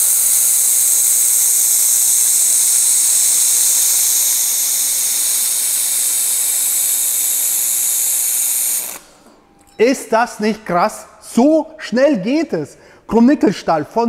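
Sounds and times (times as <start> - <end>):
laser welding torch hissing: 0.0 - 9.3.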